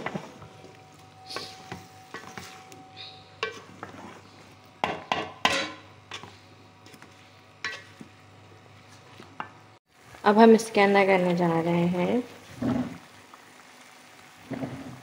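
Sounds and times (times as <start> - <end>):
wooden spoon stirring in metal pot: 1.3 - 8.2.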